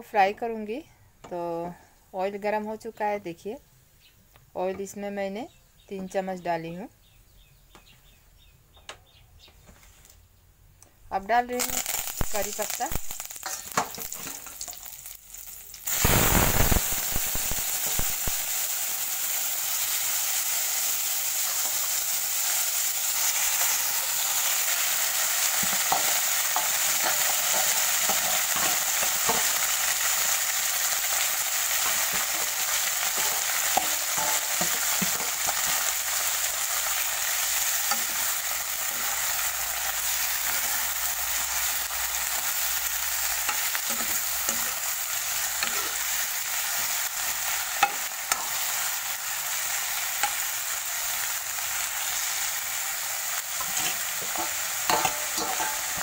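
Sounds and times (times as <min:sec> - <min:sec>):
food sizzling in hot oil: 0:11.4 - 0:56.0
spatula stirring in wok: 0:23.2 - 0:52.5, 0:53.4 - 0:56.0.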